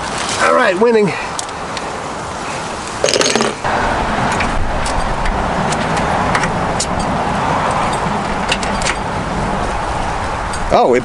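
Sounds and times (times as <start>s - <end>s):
steady rushing background noise: 0.0s - 11.0s
metallic tool clicks and clinks: 3.0s - 3.6s.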